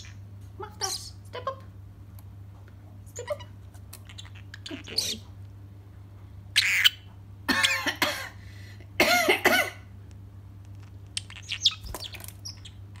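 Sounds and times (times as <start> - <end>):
bird imitating a cough: 7.5 - 8.4
bird chirps and clicks: 10.7 - 13.0.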